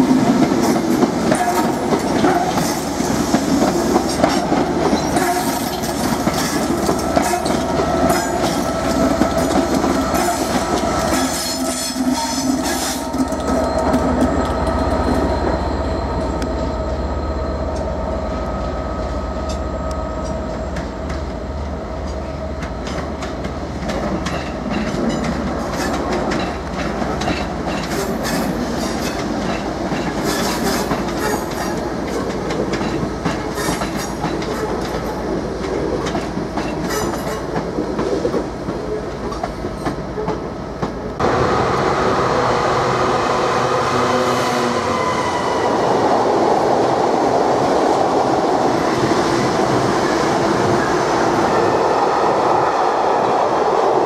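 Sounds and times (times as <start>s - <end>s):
diesel locomotive approaching: 0.0s - 54.0s
train rumble: 0.0s - 54.0s
train wheels clicking over rail joints: 0.2s - 15.6s, 22.0s - 41.1s.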